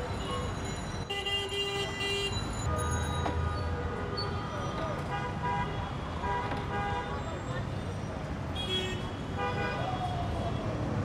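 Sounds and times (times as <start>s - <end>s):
vehicle horns honking: 1.1s - 2.5s.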